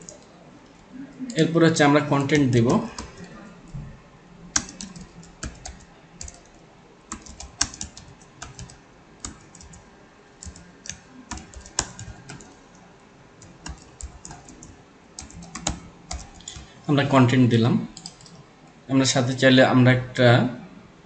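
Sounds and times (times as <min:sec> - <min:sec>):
keyboard typing: 0:00.0 - 0:00.3, 0:01.3 - 0:03.8, 0:04.4 - 0:16.8, 0:17.9 - 0:18.5.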